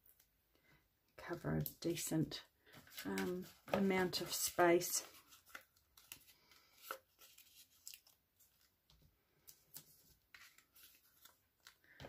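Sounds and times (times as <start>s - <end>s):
paper rustling: 2.7s - 8.8s, 9.4s - 12.0s.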